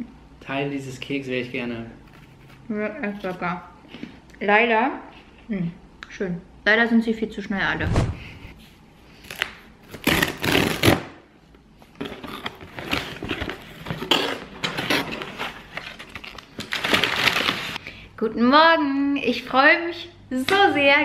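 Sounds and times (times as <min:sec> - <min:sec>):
cardboard and paper rustling: 0:12.0 - 0:17.8.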